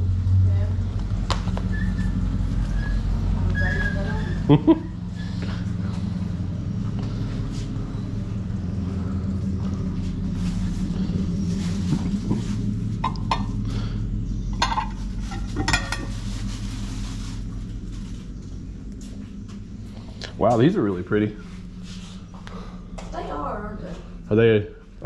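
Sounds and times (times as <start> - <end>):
steady low hum: 0.0 - 25.0
glass dishes clinking: 15.6 - 16.1.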